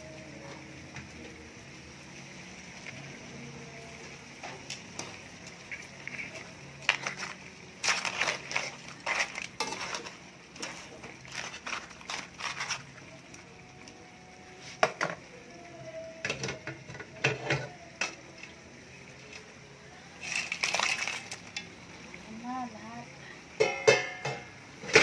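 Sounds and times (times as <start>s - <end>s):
pot and lid knocking and clinking: 23.6s - 25.0s.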